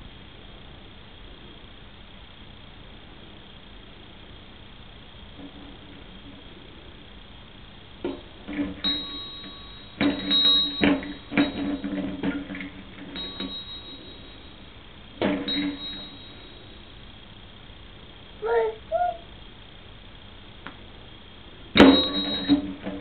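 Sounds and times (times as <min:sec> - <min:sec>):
toy bell ringing: 0:08.8 - 0:12.0, 0:13.1 - 0:14.7, 0:15.5 - 0:17.0, 0:21.8 - 0:22.8.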